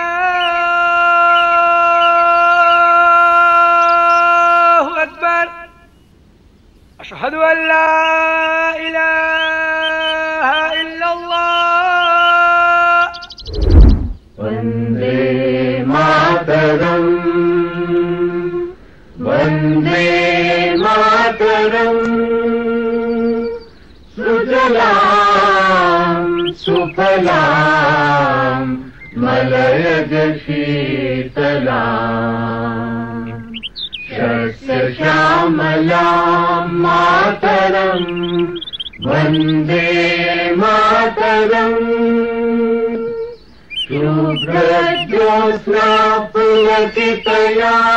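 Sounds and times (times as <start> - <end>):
low voice chanting: 7.0 - 13.2, 14.4 - 47.9
solemn singing: 7.1 - 13.2, 14.4 - 47.9
deep boom: 13.5 - 14.3.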